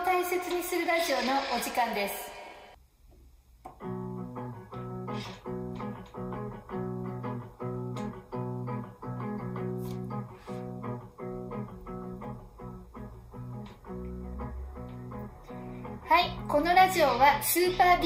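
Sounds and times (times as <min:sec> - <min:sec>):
strummed guitar chords: 0:03.8 - 0:18.0.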